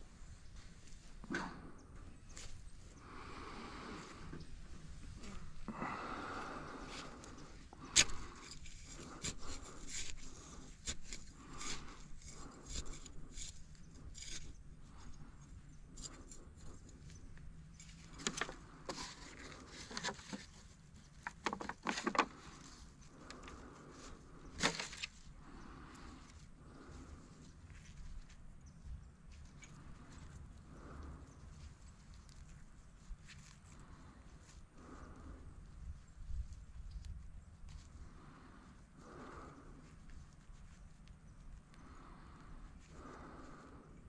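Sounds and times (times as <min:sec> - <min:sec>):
rustling and scraping: 0:00.0 - 0:35.2.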